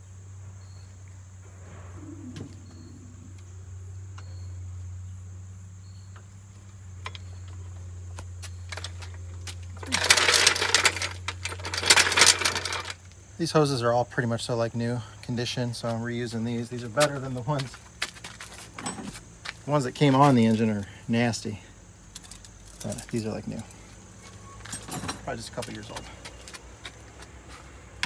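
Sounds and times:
steady low hum: 0:00.0 - 0:28.0
metallic clattering and rattling: 0:08.6 - 0:13.1, 0:17.9 - 0:19.4, 0:22.1 - 0:26.1.

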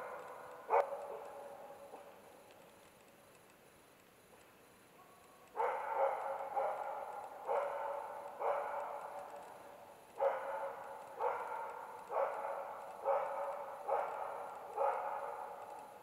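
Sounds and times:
dog barking with echo: 0:00.0 - 0:02.0, 0:05.0 - 0:09.3, 0:10.2 - 0:15.8.

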